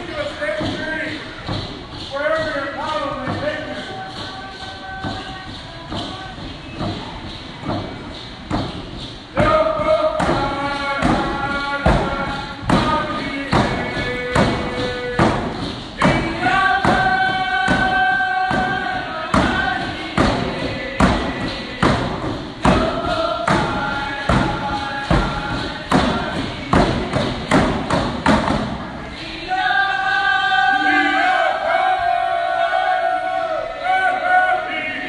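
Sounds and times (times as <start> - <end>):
frame drums beating: 0.0 - 33.3
group singing: 9.0 - 35.0.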